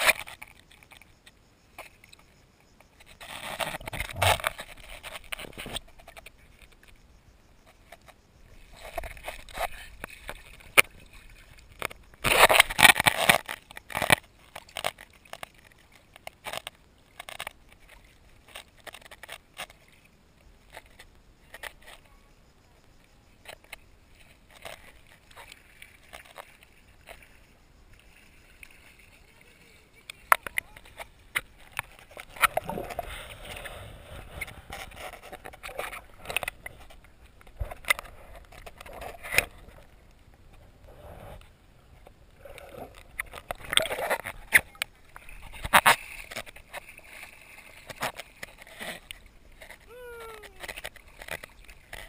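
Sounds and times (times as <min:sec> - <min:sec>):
camera scraping over sand underwater: 0:00.0 - 0:52.0.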